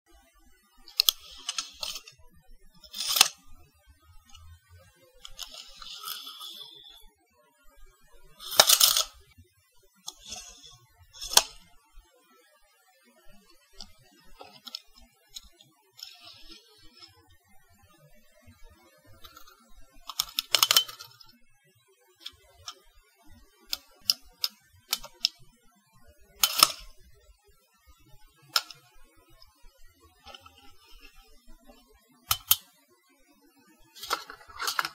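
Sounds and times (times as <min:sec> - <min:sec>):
tape measure clicking and rattling: 0:00.9 - 0:02.1, 0:02.8 - 0:03.4, 0:05.2 - 0:07.0, 0:08.4 - 0:09.2, 0:10.1 - 0:11.6, 0:13.8 - 0:17.2, 0:20.1 - 0:21.3, 0:23.7 - 0:25.4, 0:26.4 - 0:27.0, 0:28.6 - 0:28.8, 0:30.2 - 0:31.2, 0:32.3 - 0:32.6, 0:34.0 - 0:34.9
tape measure zip and snap: 0:00.9 - 0:02.1, 0:02.9 - 0:03.4, 0:05.3 - 0:07.0, 0:08.4 - 0:09.2, 0:10.1 - 0:11.6, 0:16.0 - 0:17.1, 0:26.4 - 0:26.8, 0:34.0 - 0:34.9.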